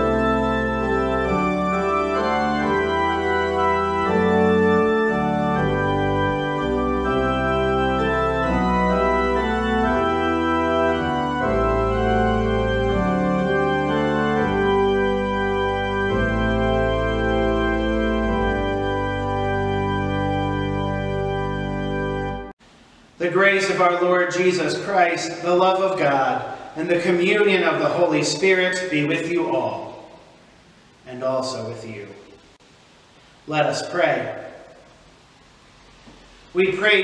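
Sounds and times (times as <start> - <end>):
church organ playing a hymn: 0.0 - 22.6, 23.2 - 30.1.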